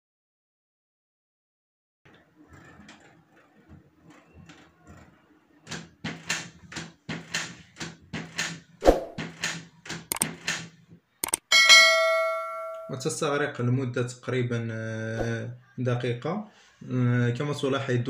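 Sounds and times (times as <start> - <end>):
printer clicks: 9.4 - 10.6, 11.2 - 11.4
printer mechanical strokes: 10.1 - 10.4.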